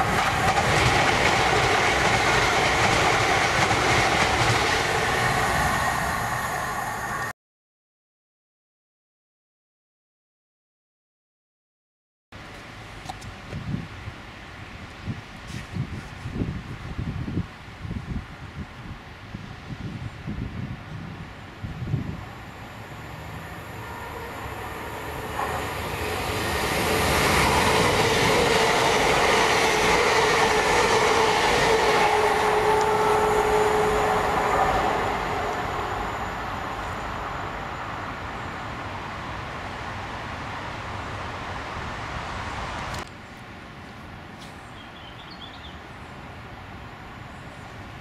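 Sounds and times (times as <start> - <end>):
train passing: 0.0 - 7.3, 21.0 - 48.0.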